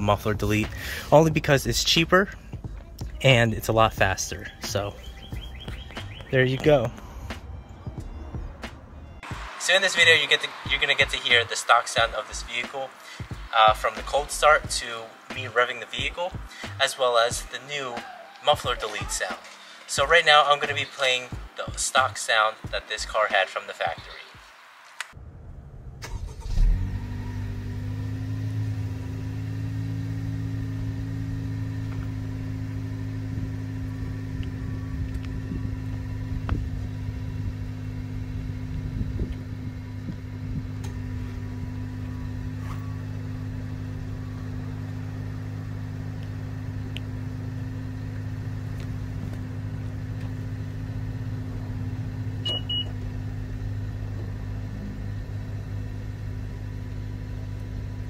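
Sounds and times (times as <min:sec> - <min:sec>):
car exhaust idling: 0:00.0 - 0:09.2, 0:25.2 - 0:58.0.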